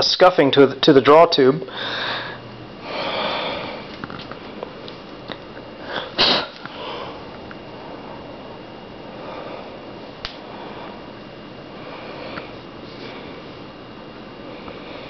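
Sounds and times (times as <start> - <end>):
person sniffing: 5.9 - 6.6.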